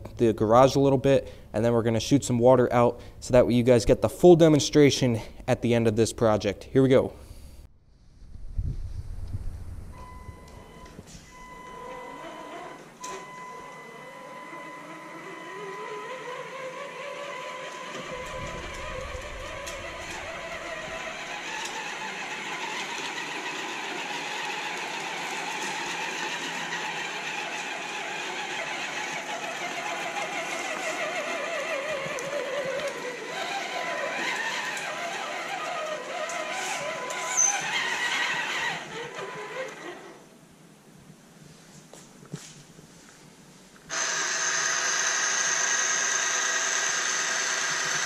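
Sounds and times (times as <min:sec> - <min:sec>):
electric motor and gearbox whining: 0:09.9 - 0:40.3, 0:43.9 - 0:48.0
steady high tone: 0:10.0 - 0:16.2, 0:17.6 - 0:21.8.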